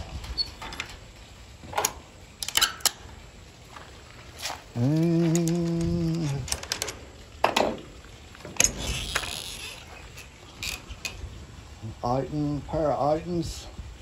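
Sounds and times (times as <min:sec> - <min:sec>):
man's voice holding a note: 0:11.8 - 0:13.8.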